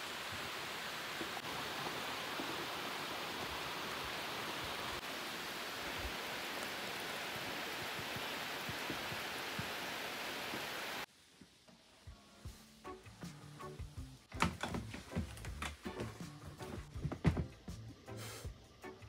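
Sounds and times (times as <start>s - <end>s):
steady rain hiss: 0.0s - 13.8s.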